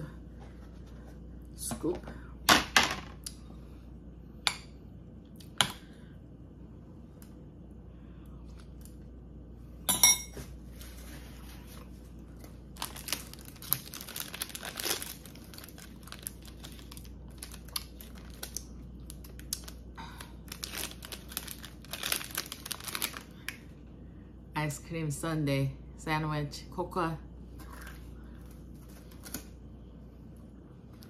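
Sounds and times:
paper wrapper tearing and crinkling: 0:12.7 - 0:19.8, 0:20.5 - 0:23.3.

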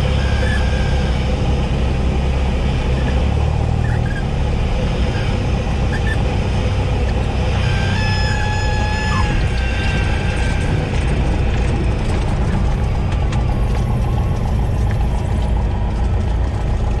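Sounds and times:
aircraft engine idling: 0:00.0 - 0:17.0
wind and runway noise: 0:00.0 - 0:17.0.

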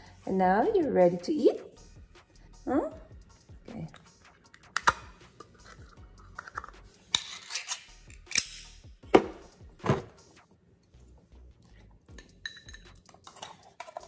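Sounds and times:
can lid scraping: 0:04.7 - 0:07.8.

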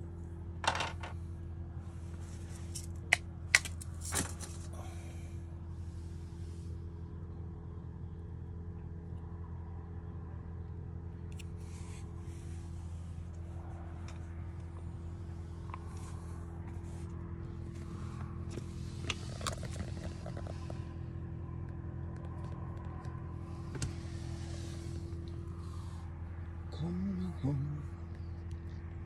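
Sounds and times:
low mechanical hum: 0:00.0 - 0:29.0.

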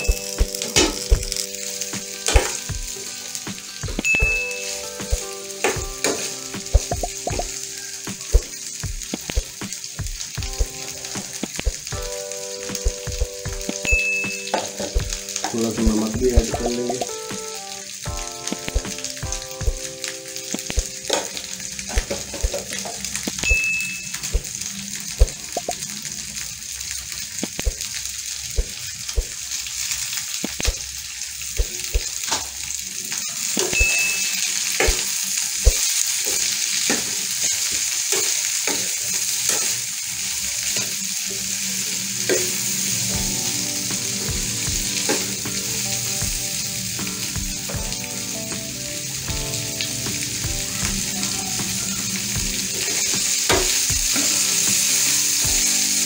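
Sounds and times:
okra sizzling in oil: 0:00.0 - 0:56.0.

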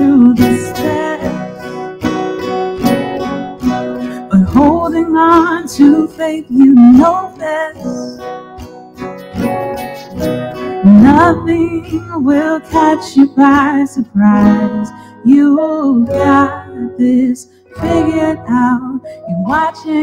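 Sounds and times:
woman singing: 0:00.0 - 0:01.8, 0:04.2 - 0:08.3, 0:10.8 - 0:20.0
acoustic guitar strummed: 0:00.0 - 0:20.0.

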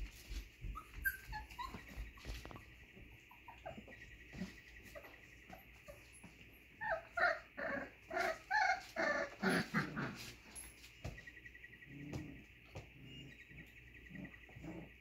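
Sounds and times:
puppies whimpering and yipping: 0:00.0 - 0:10.9.

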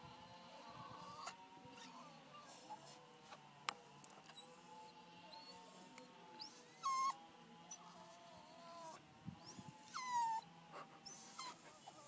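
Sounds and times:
dog whimpering: 0:00.8 - 0:02.9, 0:05.3 - 0:12.0
dog whining: 0:00.9 - 0:02.8, 0:05.3 - 0:12.0.

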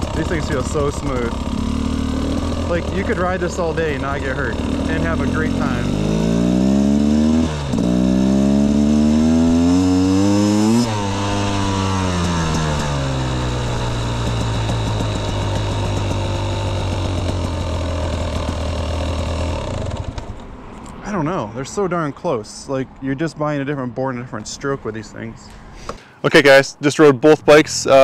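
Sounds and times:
dirt bike engine accelerating: 0:00.0 - 0:20.8.

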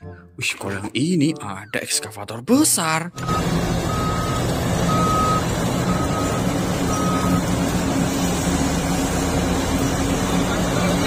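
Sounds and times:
reversing alarm beeping: 0:03.2 - 0:07.8
diesel engines running: 0:03.2 - 0:11.0.

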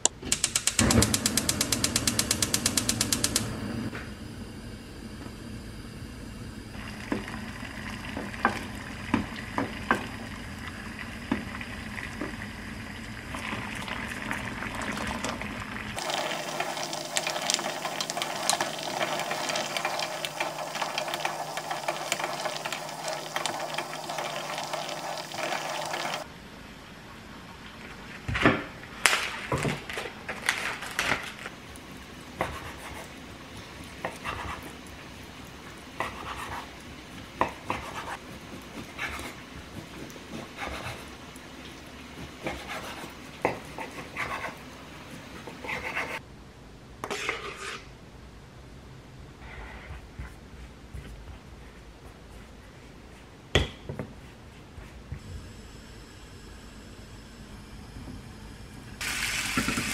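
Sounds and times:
water boiling in a pot: 0:06.7 - 0:26.3, 0:30.4 - 0:45.7, 0:55.4 - 0:59.9.

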